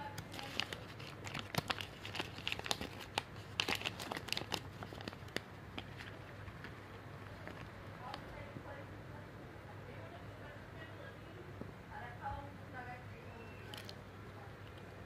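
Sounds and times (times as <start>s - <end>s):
plastic wrapper crinkling: 0.1s - 8.3s, 13.6s - 14.0s.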